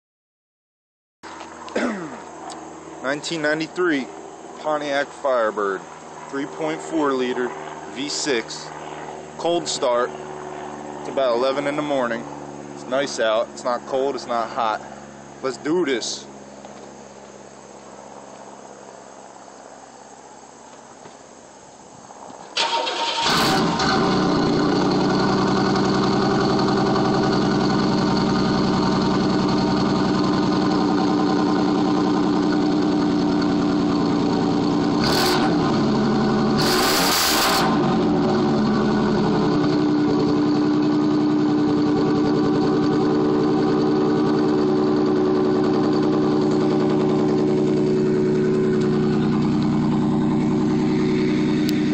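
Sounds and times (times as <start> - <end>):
car engine cranking and idling: 22.4 - 51.9.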